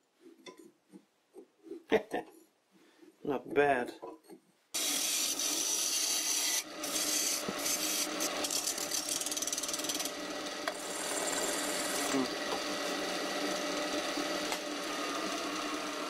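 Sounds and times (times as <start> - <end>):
lathe motor hum: 4.8 - 16.0
tool cutting wood on lathe: 4.8 - 16.0.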